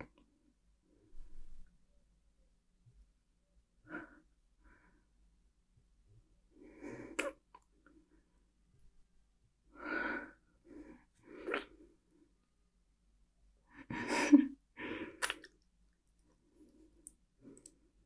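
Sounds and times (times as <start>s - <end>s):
woman breathing: 9.7s - 12.0s.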